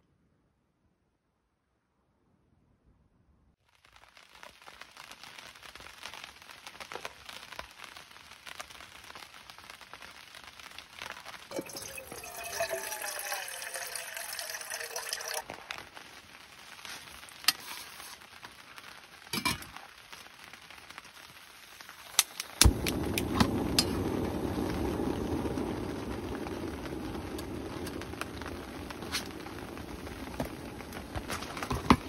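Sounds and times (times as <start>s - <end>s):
gas burner hissing: 22.0s - 32.0s.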